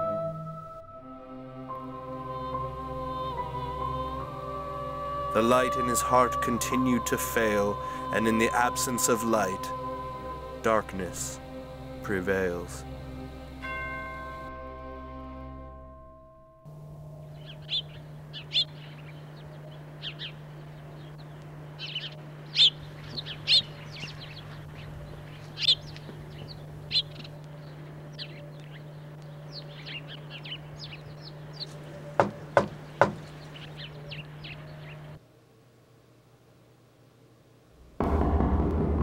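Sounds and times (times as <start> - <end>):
steady low hum: 0.0 - 39.0
small birds chirping: 17.2 - 35.2
knocks on a door: 32.2 - 33.2.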